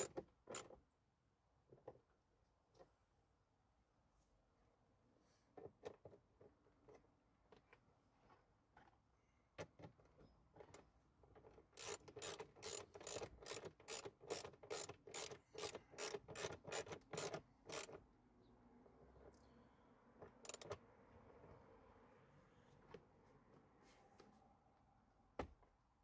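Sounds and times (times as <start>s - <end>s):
ratchet wrench clicking: 11.8s - 18.0s, 20.4s - 20.8s.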